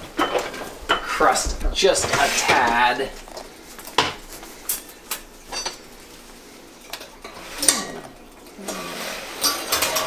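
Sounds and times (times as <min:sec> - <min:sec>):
metal kitchenware clinking: 0:00.2 - 0:01.2, 0:04.0 - 0:05.9, 0:06.9 - 0:10.0.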